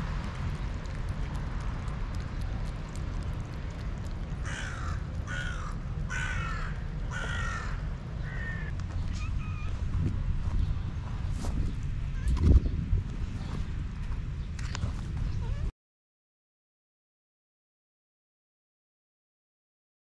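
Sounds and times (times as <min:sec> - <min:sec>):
steady low rumble: 0:00.0 - 0:15.7
crow cawing: 0:04.4 - 0:08.7.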